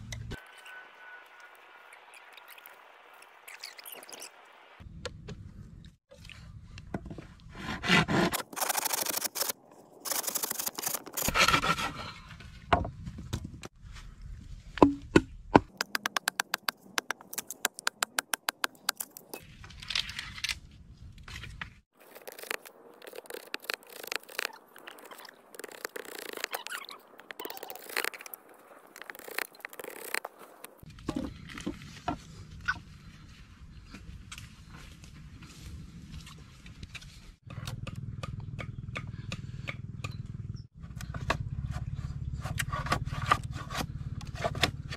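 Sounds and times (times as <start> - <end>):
machete scraping and cutting bamboo: 7.5 - 12.3, 21.4 - 26.8, 40.9 - 44.9
sharp knocks on bamboo: 14.8 - 16.7.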